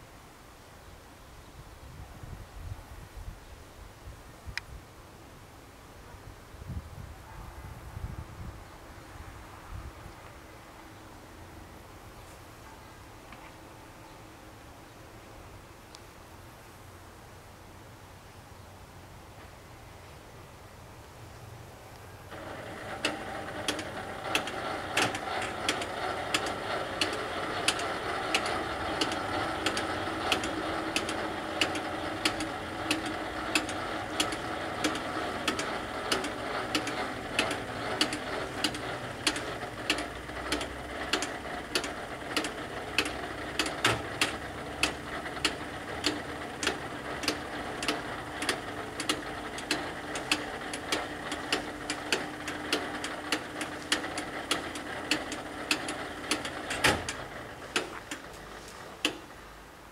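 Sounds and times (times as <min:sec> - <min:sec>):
barrier motor humming: 0:22.2 - 0:59.8
sharp regular ticking: 0:22.3 - 0:58.4.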